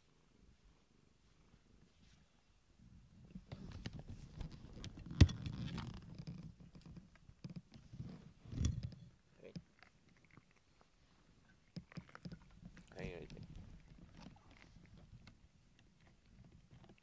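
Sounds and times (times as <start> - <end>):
rustling and light bumps: 3.3 - 9.8.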